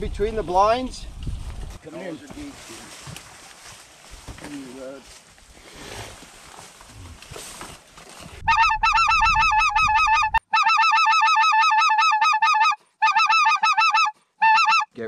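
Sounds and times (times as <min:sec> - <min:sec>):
low rustle and rumble: 0:00.0 - 0:08.5
geese honking: 0:08.5 - 0:14.9.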